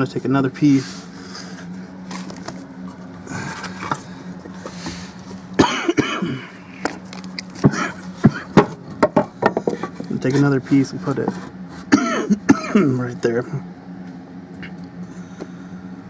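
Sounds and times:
low hum: 0.0s - 16.0s
wooden board knocking and scraping: 7.6s - 10.1s.

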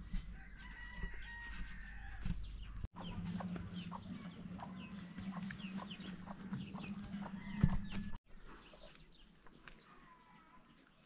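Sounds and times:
chickens calling: 2.9s - 8.2s.

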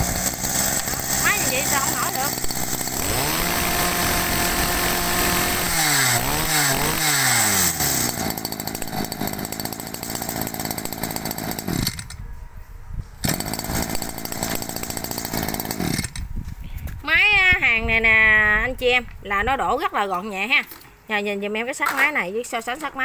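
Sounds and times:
brush cutter engine revving: 0.0s - 12.2s, 13.2s - 16.2s.

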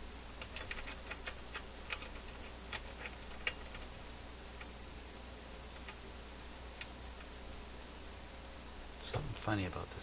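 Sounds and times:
amplifier humming low: 0.0s - 10.0s
small irregular clicks: 0.4s - 4.8s, 5.6s - 6.0s, 6.7s - 7.6s.

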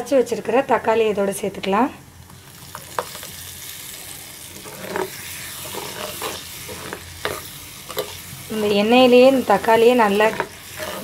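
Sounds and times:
food sizzling in hot oil: 2.2s - 11.0s.

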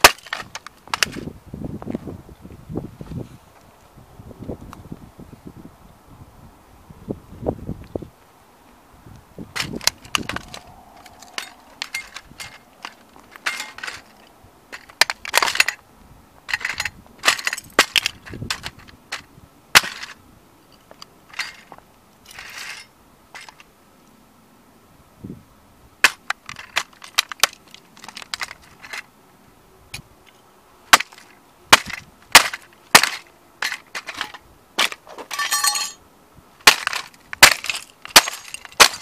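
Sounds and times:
plastic toy car cracking underfoot: 0.0s - 1.3s, 9.6s - 14.2s, 14.8s - 15.8s, 16.5s - 20.2s, 26.1s - 29.1s, 30.9s - 35.2s, 36.6s - 39.0s.

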